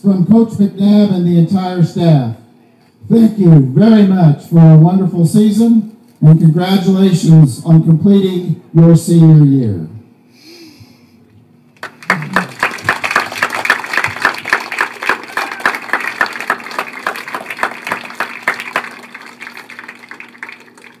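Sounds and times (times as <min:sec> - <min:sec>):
steady low hum: 0:00.0 - 0:21.0
spectators applauding: 0:11.8 - 0:21.0.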